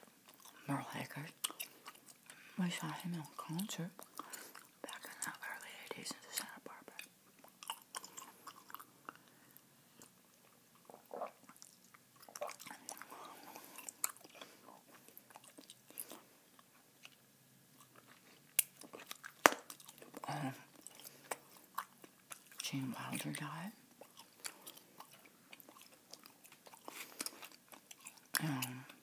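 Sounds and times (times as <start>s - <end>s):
mouth chewing bubble gum: 0.0s - 5.6s, 6.3s - 29.0s
gum snapping: 18.6s - 19.9s.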